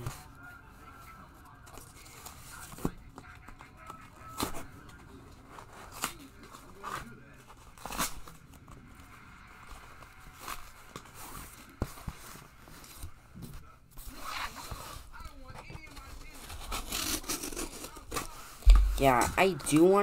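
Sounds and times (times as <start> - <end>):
cardboard tearing and scraping: 16.2 - 19.2.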